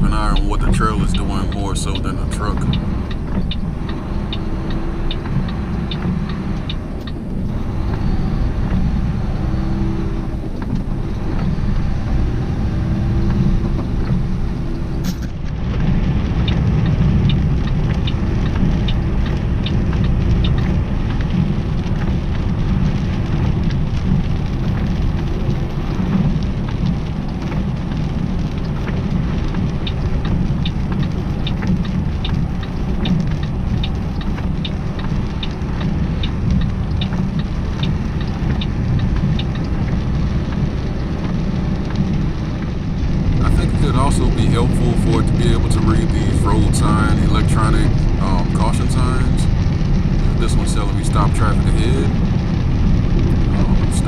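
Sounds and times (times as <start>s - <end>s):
truck engine running: 0.0s - 54.0s
light ticks: 0.3s - 7.2s, 16.3s - 42.8s.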